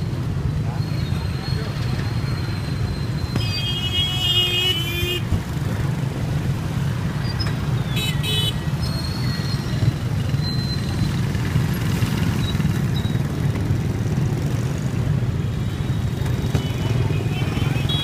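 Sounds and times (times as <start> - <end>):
motorbike traffic rumble: 0.0 - 18.0.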